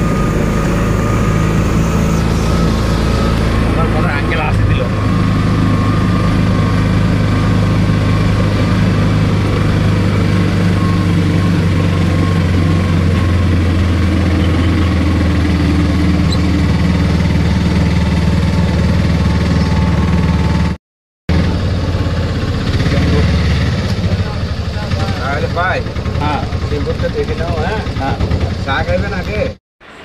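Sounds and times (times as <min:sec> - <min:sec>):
auto-rickshaw engine running: 0:00.0 - 0:30.0.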